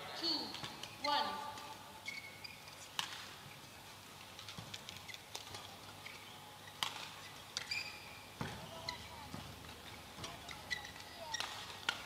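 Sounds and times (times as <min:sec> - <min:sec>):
court shoes squeaking: 0:00.2 - 0:12.0
rackets hitting shuttlecock: 0:00.4 - 0:03.4, 0:04.3 - 0:12.0
light footsteps on court: 0:00.4 - 0:12.0.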